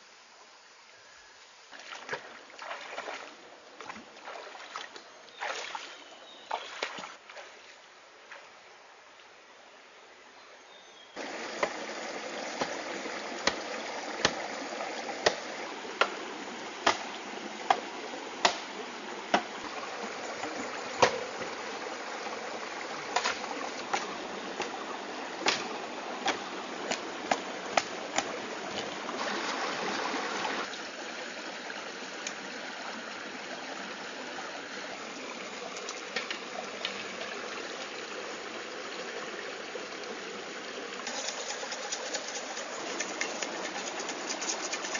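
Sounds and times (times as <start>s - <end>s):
stream running over rocks: 0.0s - 9.5s, 11.0s - 44.9s
blade striking bamboo: 18.4s - 18.7s.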